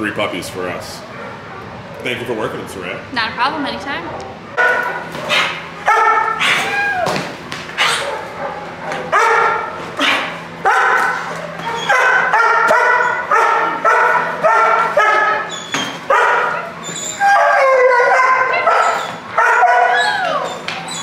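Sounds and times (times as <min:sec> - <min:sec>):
puppy barking: 0:01.1 - 0:01.7, 0:04.6 - 0:06.8, 0:07.8 - 0:21.0.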